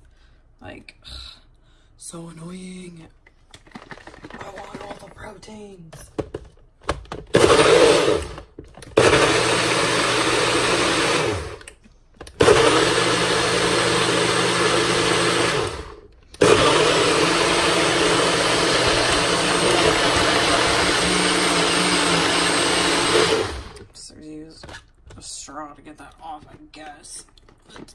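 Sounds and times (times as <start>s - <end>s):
blender motor whirring: 7.3s - 11.7s, 12.3s - 23.9s.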